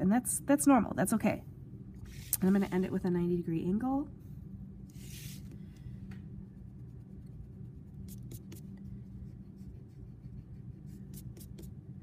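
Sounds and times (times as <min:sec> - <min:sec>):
pencil strokes on paper: 0:04.9 - 0:05.5, 0:06.6 - 0:11.7
plastic ruler brushing across paper: 0:04.9 - 0:05.5.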